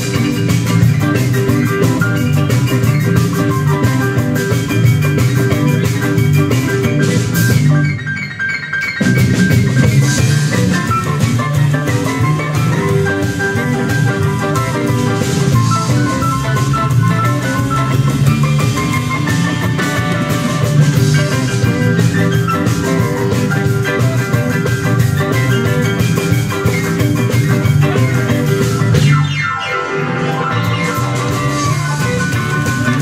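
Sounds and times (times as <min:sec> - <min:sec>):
bass: 0:00.0 - 0:33.0
drums: 0:00.0 - 0:33.0
piano notes: 0:00.0 - 0:33.0.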